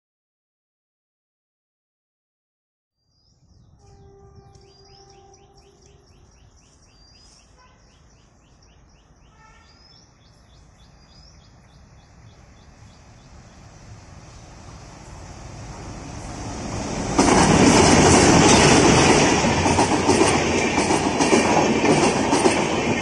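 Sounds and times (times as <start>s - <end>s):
birds chirping: 3.0s - 16.0s
diesel train rumble: 10.3s - 23.0s.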